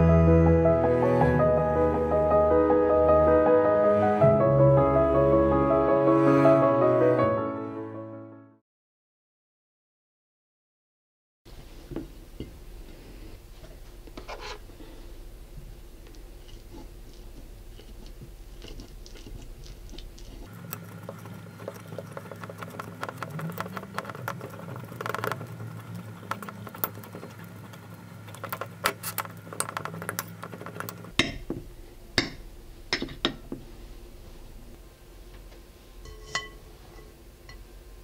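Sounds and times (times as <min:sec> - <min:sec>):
fork scraping on ceramic plate: 0:36.1 - 0:37.1.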